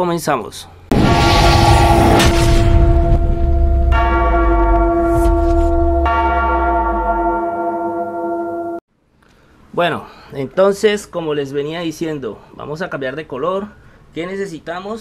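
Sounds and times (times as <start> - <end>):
low rumble: 0.9 - 7.5
deep bell-like tone: 0.9 - 8.8.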